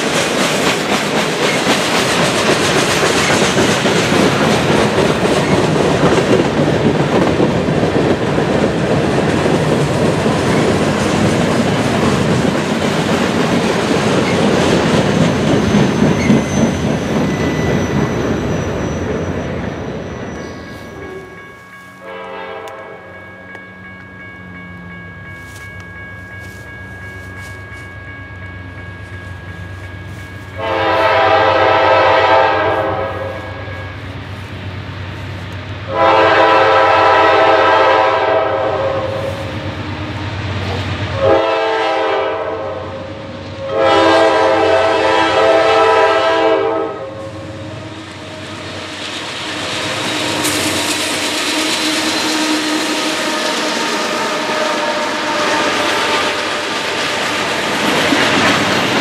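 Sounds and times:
train rumble: 0:00.0 - 0:59.0
locomotive air horn blasts: 0:22.0 - 0:23.1, 0:30.6 - 0:33.7, 0:35.9 - 0:39.4, 0:41.2 - 0:43.0, 0:43.6 - 0:48.7, 0:51.3 - 0:56.7.

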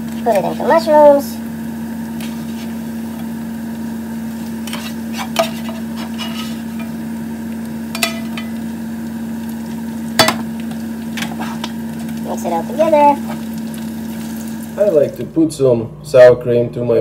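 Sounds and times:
frying sizzle: 0:00.0 - 0:15.6
spatula scraping a frying pan: 0:02.2 - 0:03.2, 0:04.3 - 0:07.1, 0:11.1 - 0:12.2
utensil knocking on pan: 0:07.9 - 0:08.6, 0:10.2 - 0:10.5.

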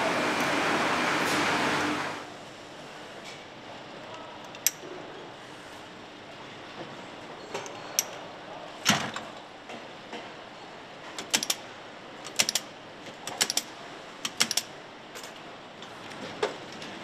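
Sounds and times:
steady factory hum: 0:00.0 - 0:17.0.

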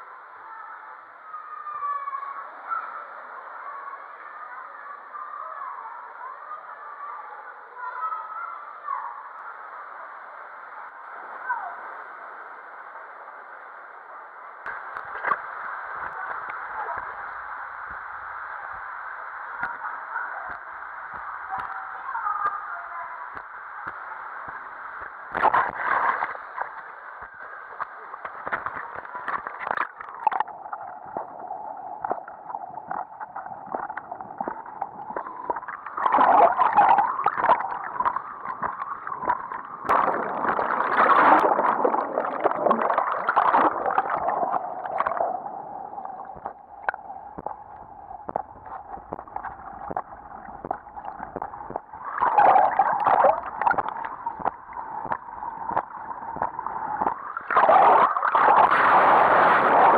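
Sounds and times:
muffled water rushing and splashing: 0:14.4 - 0:59.9.

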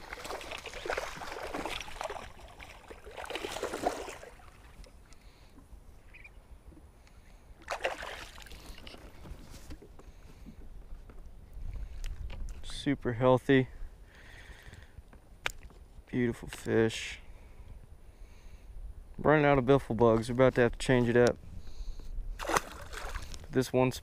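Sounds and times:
fish splashing in water: 0:00.0 - 0:05.0, 0:07.6 - 0:08.9, 0:22.4 - 0:23.4.

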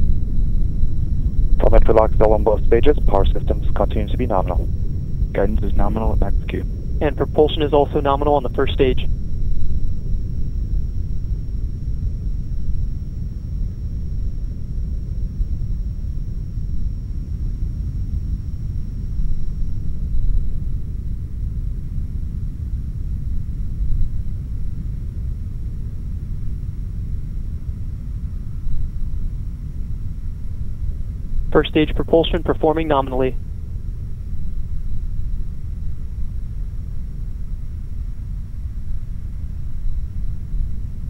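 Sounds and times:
rocket engines rumbling: 0:00.0 - 0:10.2, 0:31.4 - 0:33.4.

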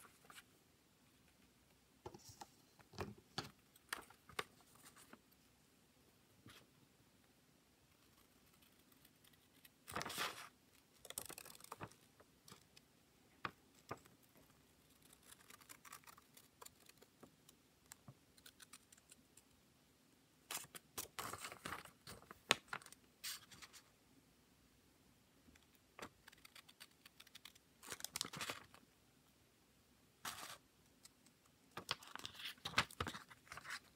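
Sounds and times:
paper rustling: 0:08.1 - 0:10.5, 0:20.5 - 0:23.8, 0:31.8 - 0:33.9.

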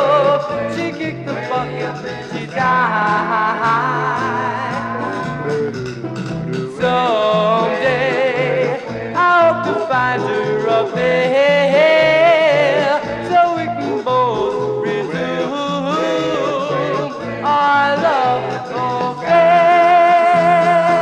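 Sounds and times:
doo-wop vocal group singing: 0:00.0 - 0:21.0
stepping bass line: 0:00.0 - 0:21.0.

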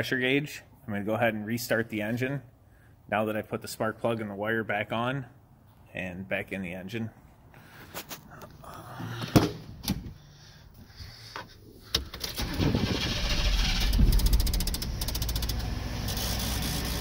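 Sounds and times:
truck engine cranking and idling: 0:11.8 - 0:17.0.

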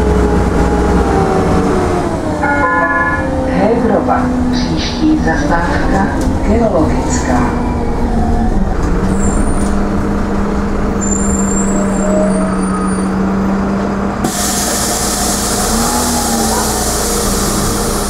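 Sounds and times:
bus engine hum: 0:00.0 - 0:18.0
compressed air hiss: 0:14.2 - 0:18.0.

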